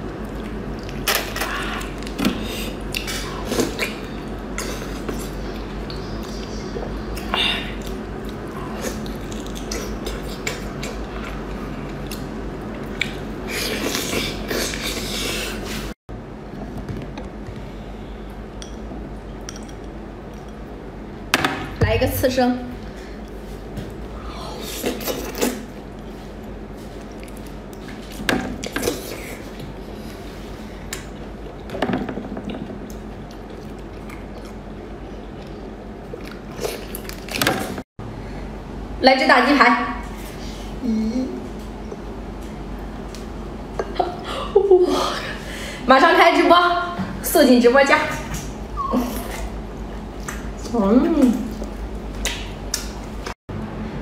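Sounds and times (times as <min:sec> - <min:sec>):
wet eating sounds: 0:00.0 - 0:16.0, 0:22.8 - 0:31.8, 0:32.5 - 0:37.8, 0:48.1 - 0:53.4
steady low hum: 0:00.0 - 0:54.0.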